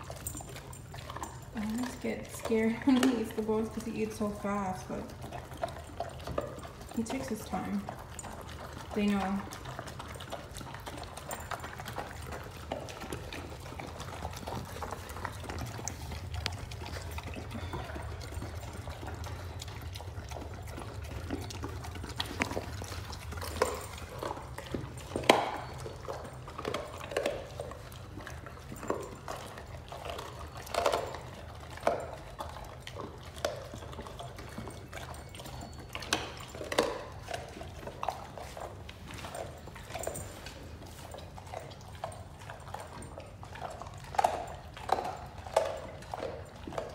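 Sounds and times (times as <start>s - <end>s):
dog smacking and slurping food: 0.0s - 46.9s.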